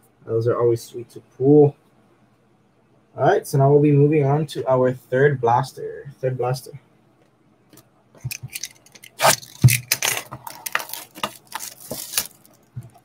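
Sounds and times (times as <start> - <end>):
plastic wrap crackling and rustling: 8.3 - 13.0.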